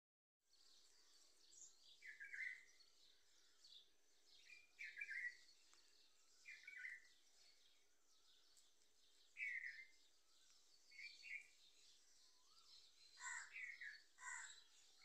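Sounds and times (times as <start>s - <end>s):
high bird twittering: 2.0s - 2.7s, 4.4s - 5.5s, 6.4s - 7.1s, 9.3s - 9.9s, 10.9s - 15.0s
bird call: 12.4s - 14.7s.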